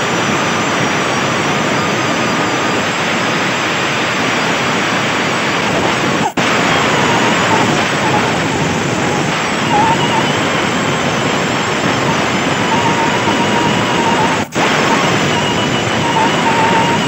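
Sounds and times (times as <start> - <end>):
die grinder buffing rubber: 4.8 - 17.0.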